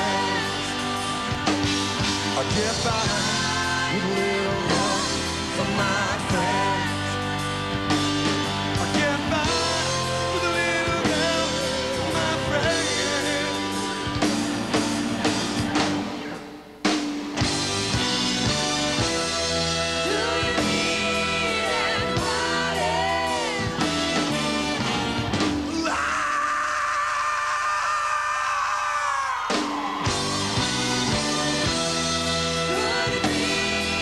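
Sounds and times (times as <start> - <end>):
person singing: 0.0 - 1.2, 2.3 - 7.4, 8.7 - 14.0
pop rock band playing: 0.0 - 26.6, 29.1 - 34.0.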